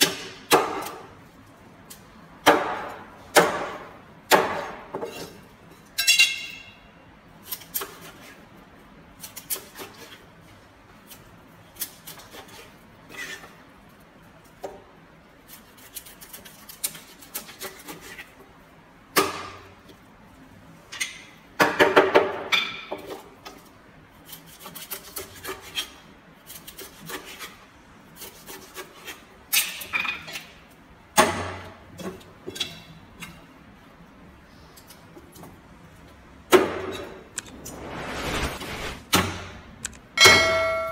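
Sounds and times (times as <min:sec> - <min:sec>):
knife slicing and scraping fish: 0:07.4 - 0:08.4, 0:09.2 - 0:10.3, 0:11.0 - 0:14.0, 0:15.4 - 0:18.4, 0:23.6 - 0:29.8.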